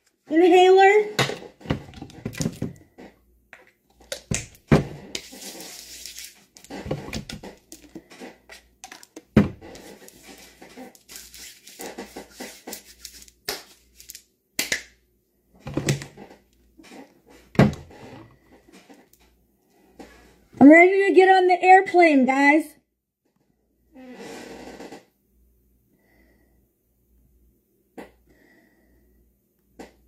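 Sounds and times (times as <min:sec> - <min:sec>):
rustling: 0:05.0 - 0:08.7.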